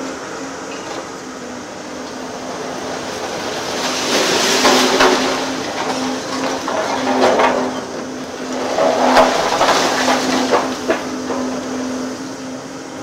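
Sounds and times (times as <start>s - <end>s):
excavator engine humming: 0.0s - 13.0s
shears crushing masonry: 1.7s - 12.2s
rubble crashing down: 2.1s - 12.0s.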